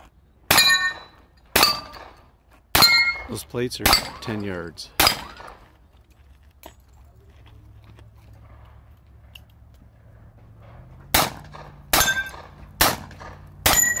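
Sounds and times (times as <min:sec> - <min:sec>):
metallic ring of steel targets: 0:00.5 - 0:05.6, 0:10.6 - 0:14.0
handgun shots: 0:05.0 - 0:05.6, 0:11.1 - 0:14.0.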